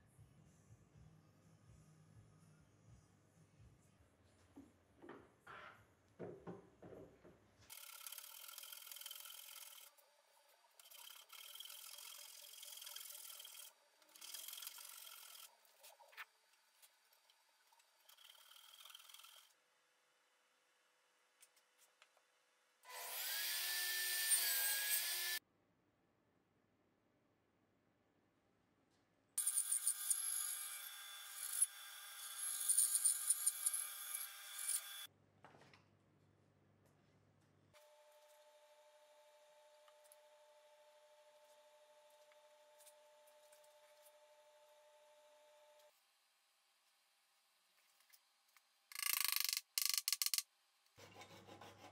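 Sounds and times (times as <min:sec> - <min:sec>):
saw rasping through wood: 0:51.0 - 0:51.9.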